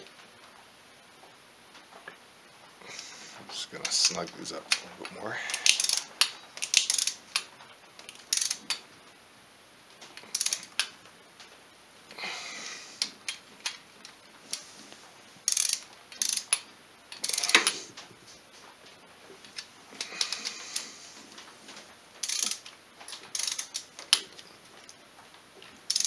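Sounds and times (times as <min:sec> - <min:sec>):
ratchet clicking: 0:05.5 - 0:08.8, 0:10.2 - 0:10.9, 0:15.5 - 0:17.8, 0:22.2 - 0:24.2.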